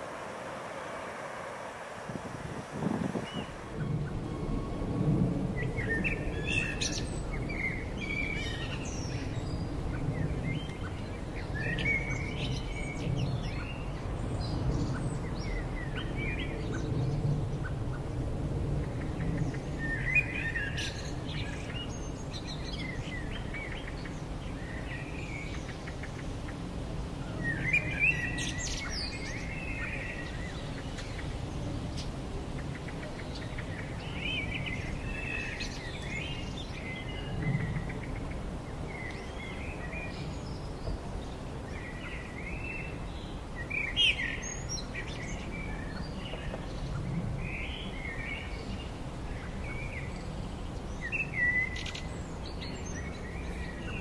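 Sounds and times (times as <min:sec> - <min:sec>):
low wind noise: 0:00.0 - 0:54.0
small birds chirping: 0:02.6 - 0:04.3, 0:18.7 - 0:54.0.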